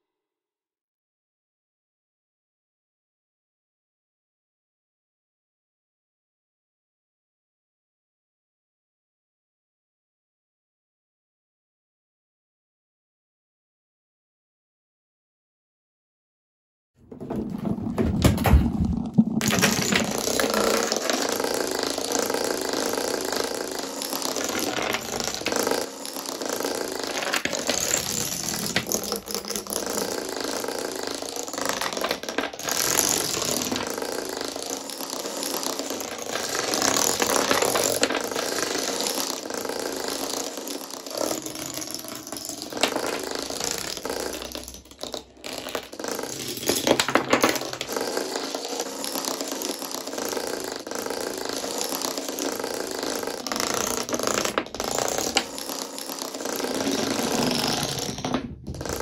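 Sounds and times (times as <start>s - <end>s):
wooden dominoes clattering: 17.1s - 59.0s
loud domino clacks: 17.3s - 59.0s.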